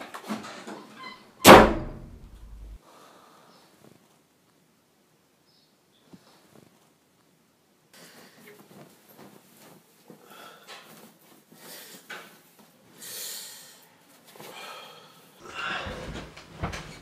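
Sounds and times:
person breathing: 2.8 - 3.7, 10.2 - 10.9, 13.0 - 16.3
clothes rustling: 6.1 - 7.0, 8.1 - 10.2.

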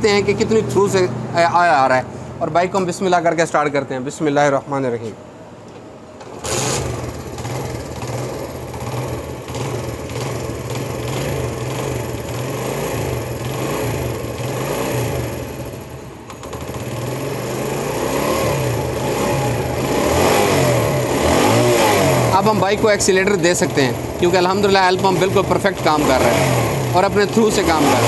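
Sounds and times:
motorcycle engine idling: 6.8 - 18.0, 22.4 - 27.6.

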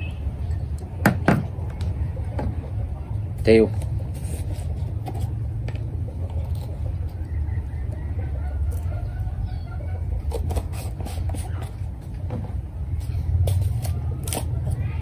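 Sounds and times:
hen clucking: 5.9 - 10.8.

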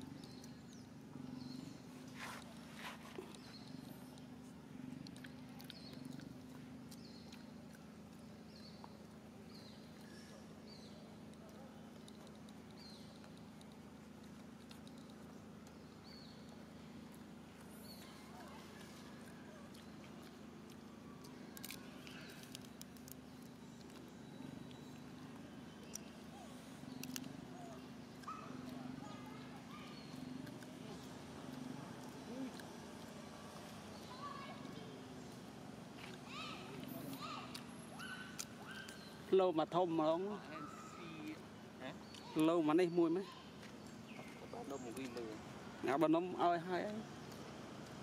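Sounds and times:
steady low hum: 0.0 - 48.0
peanut shell cracking: 20.7 - 24.0.

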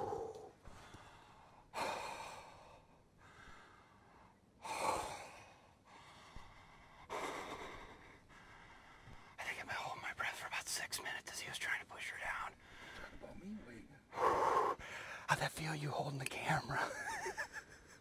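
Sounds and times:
man breathing hard: 0.0 - 9.4, 14.1 - 15.3.

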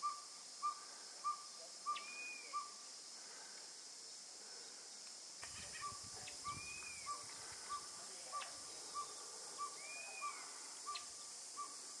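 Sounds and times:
owl calling in toots: 0.0 - 2.8, 5.6 - 11.8.

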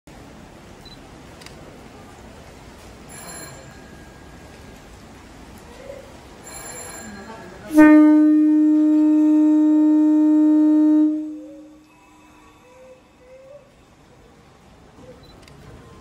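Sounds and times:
electric locomotive horn blast: 7.7 - 11.9.

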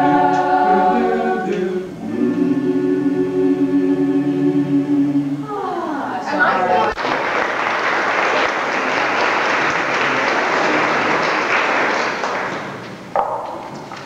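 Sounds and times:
people applauding: 6.8 - 14.0.

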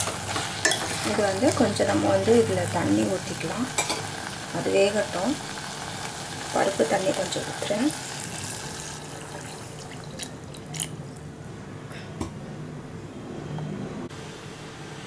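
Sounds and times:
liquid splashing into a pot: 7.9 - 11.2.

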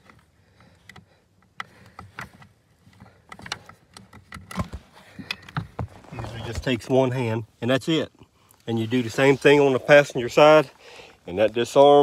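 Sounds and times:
phone handling clicks and rustles: 0.0 - 7.0.

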